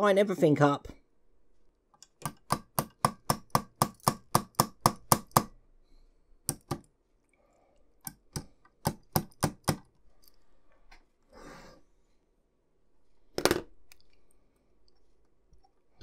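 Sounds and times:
small hammer tapping metal: 2.0 - 5.6, 6.4 - 6.9, 8.0 - 9.9.

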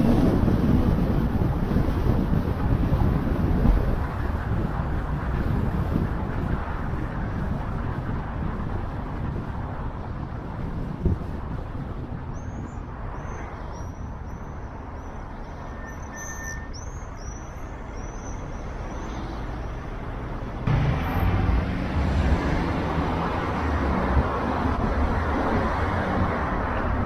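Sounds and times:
car driving in traffic: 0.0 - 27.0.

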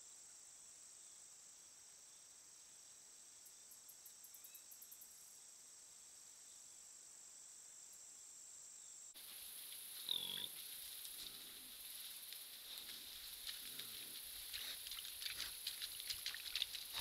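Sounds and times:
daytime hiss: 5.6 - 17.0
crickets trilling: 7.9 - 17.0
quick ticks: 10.9 - 17.0.

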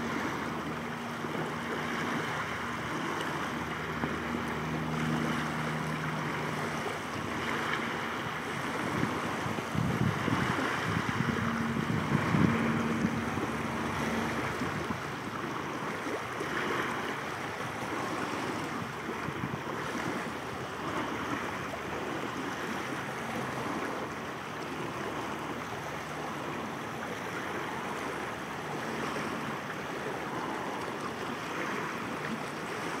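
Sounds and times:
wind rumbling on microphone: 0.0 - 24.0
choppy water lapping and splashing: 0.0 - 33.0
wind: 0.0 - 33.0.

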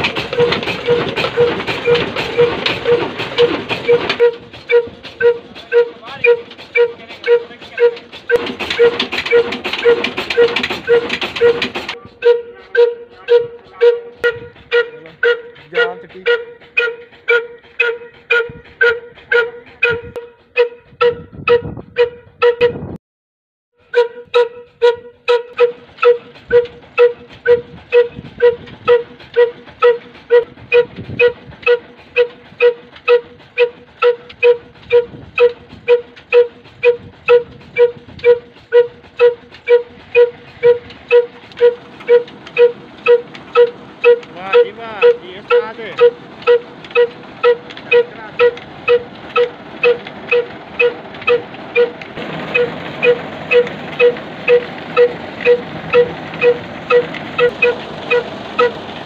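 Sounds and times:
slow diesel engine exhaust beats: 0.0 - 23.0, 23.8 - 59.0
grain mill rushing hiss: 37.6 - 59.0.

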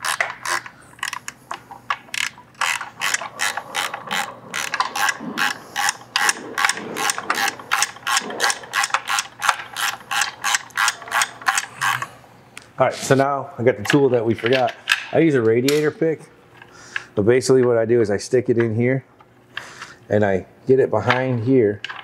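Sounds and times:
ratchet wrench clicking: 0.0 - 1.3, 2.1 - 12.1.

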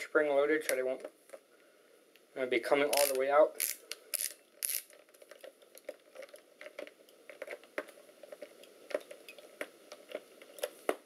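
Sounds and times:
screwdriver turning screws: 2.9 - 5.0
small irregular clicks: 2.9 - 11.0.

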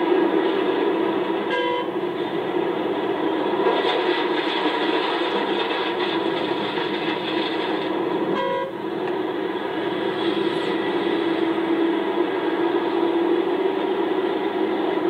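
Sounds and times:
excavator diesel engine working: 0.0 - 15.0
short horn toot: 1.5 - 1.9, 8.4 - 8.7.

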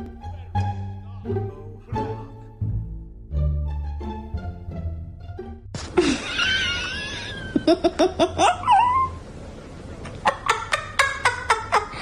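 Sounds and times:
high-pitched laughter: 6.0 - 9.2, 10.2 - 12.0.

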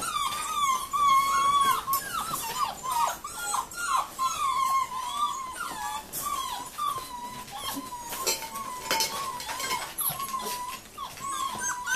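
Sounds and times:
puppies whimpering: 0.0 - 11.9
metallic clinks of tin cans: 8.2 - 10.2.

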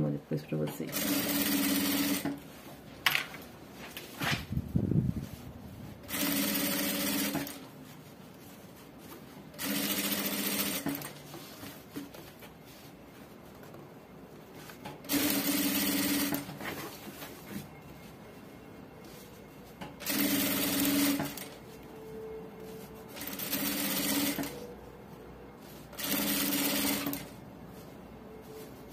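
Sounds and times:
industrial sewing machine stitching: 0.9 - 2.4, 6.0 - 7.6, 9.5 - 11.2, 15.0 - 16.5, 20.0 - 21.6, 23.1 - 24.6, 25.9 - 27.3.

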